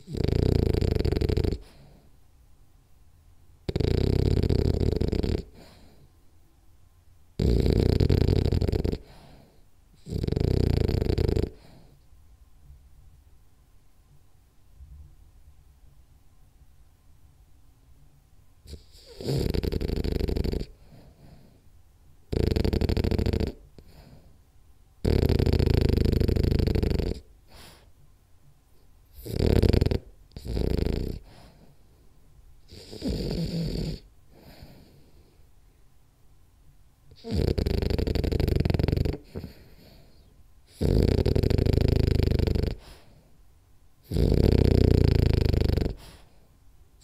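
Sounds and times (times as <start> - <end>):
dog snoring: 0.0 - 2.1, 3.6 - 6.1, 7.4 - 12.1, 18.6 - 21.6, 22.3 - 24.4, 25.0 - 27.9, 29.0 - 31.8, 32.6 - 35.4, 37.1 - 43.3, 44.0 - 46.5.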